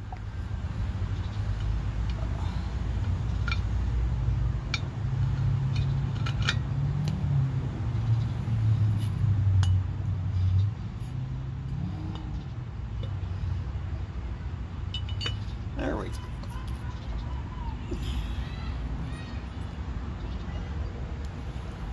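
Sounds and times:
light metallic clinks and taps: 14.9s - 15.6s.

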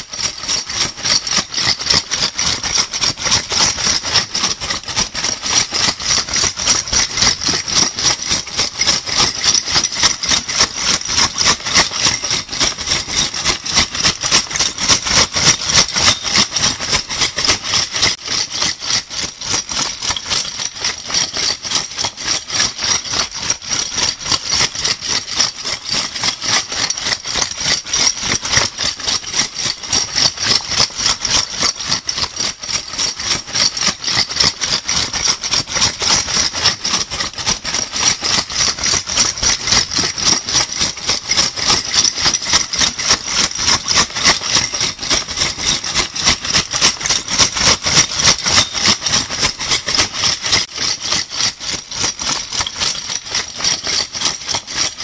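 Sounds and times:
bottle caps jingling: 15.5s - 17.3s, 47.0s - 49.5s.

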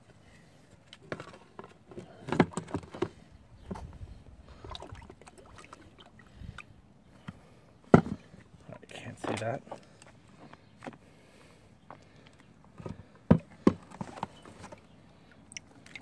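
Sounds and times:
gasoline sloshing in a plastic tub: 1.0s - 6.8s, 12.7s - 16.0s.

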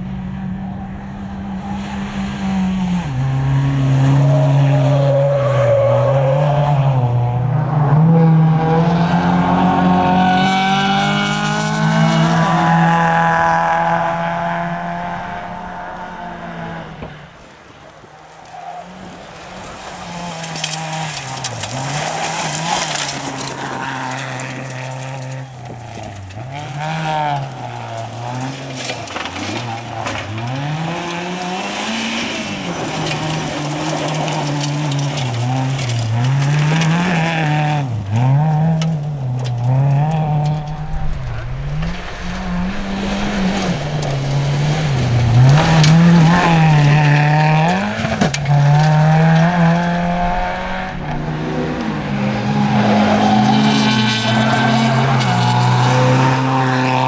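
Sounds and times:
car engine revving hard: 1.8s - 17.2s, 19.0s - 57.0s.

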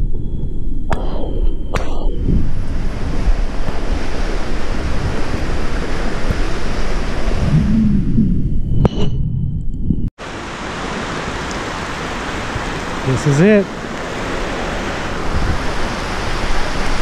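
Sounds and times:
wind buffeting microphone: 0.0s - 10.1s, 10.7s - 17.0s
river flowing over rocks: 10.2s - 17.0s
stream water rushing: 10.2s - 17.0s.

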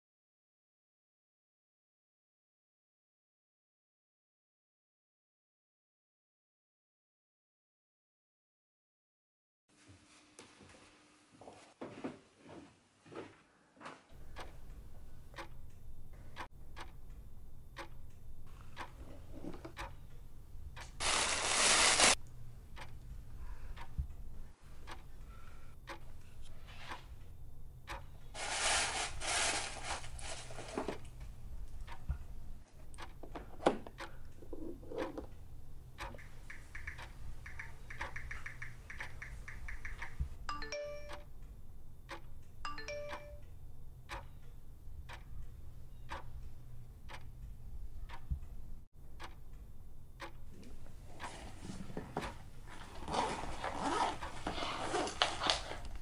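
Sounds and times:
gift box rustling: 21.0s - 22.2s, 28.4s - 31.0s, 52.7s - 56.0s
message tone chimes: 40.5s - 41.2s.

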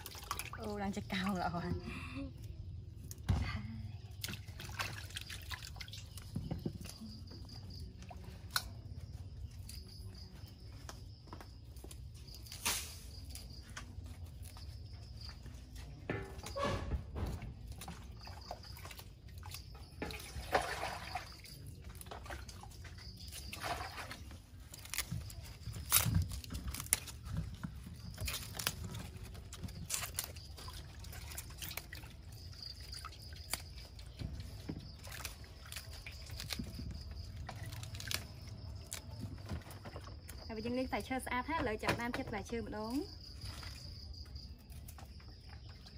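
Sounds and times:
lettuce being torn and rustled: 22.7s - 40.0s.

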